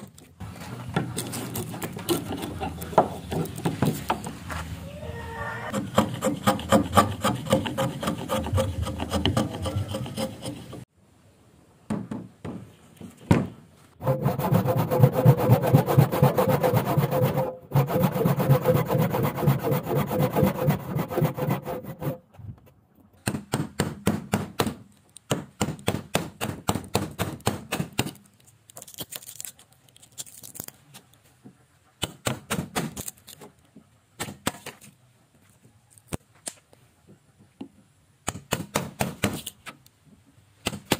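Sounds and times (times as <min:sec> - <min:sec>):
hand saw cutting wood: 0:01.1 - 0:04.1, 0:05.7 - 0:10.9, 0:14.0 - 0:22.2.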